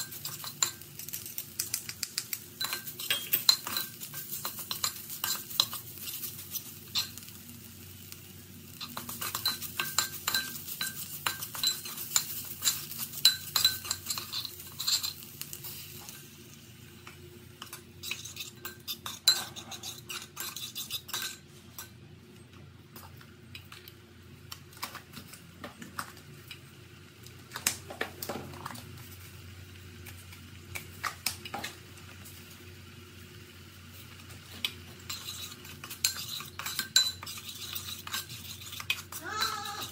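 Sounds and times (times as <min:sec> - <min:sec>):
curry paste sizzling: 0:00.0 - 0:21.5, 0:26.0 - 0:39.9
metal spoon scraping a pot: 0:18.0 - 0:21.4, 0:35.0 - 0:39.9.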